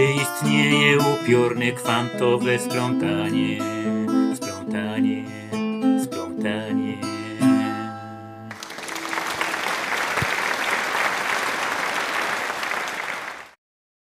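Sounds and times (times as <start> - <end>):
acoustic guitar: 0.0 - 8.6
applause: 8.5 - 13.6.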